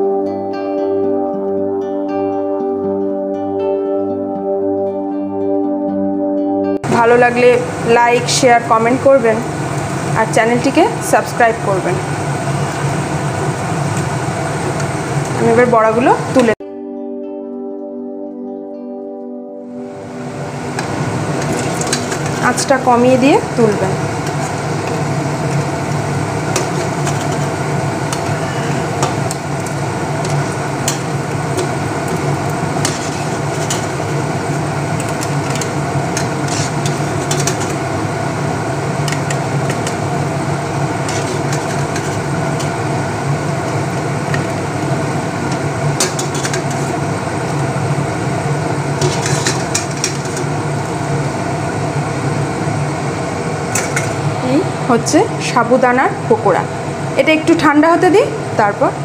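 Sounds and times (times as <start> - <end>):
food sizzling in hot oil: 7.6 - 16.4, 20.1 - 54.6
steady hum: 19.8 - 59.0.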